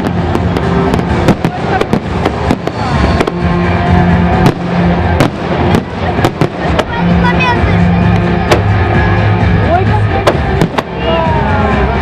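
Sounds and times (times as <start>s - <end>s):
fireworks bursting: 0.0s - 11.5s
music playing: 0.0s - 12.0s.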